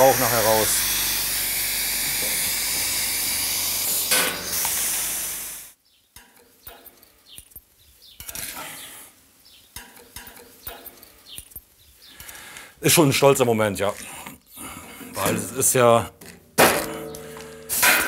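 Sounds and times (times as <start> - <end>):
pneumatic rivet gun hissing: 0.4 - 5.8, 17.7 - 18.0
small metal parts clicking: 6.2 - 8.6, 9.8 - 12.4.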